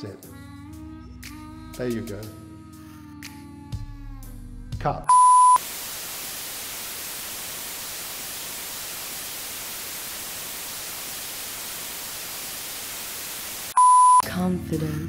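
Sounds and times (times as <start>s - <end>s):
white noise static hiss: 5.2s - 14.2s.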